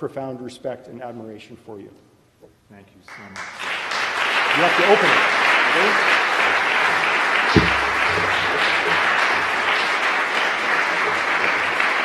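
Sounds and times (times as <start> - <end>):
audience applauding: 3.1 - 12.0
low thump: 7.5 - 9.0.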